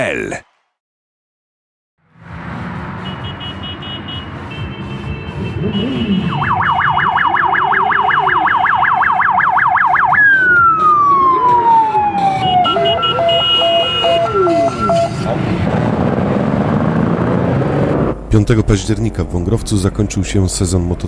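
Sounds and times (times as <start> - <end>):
motorcycle engines revving: 2.0 - 8.8, 10.2 - 18.3
police siren: 2.2 - 16.9.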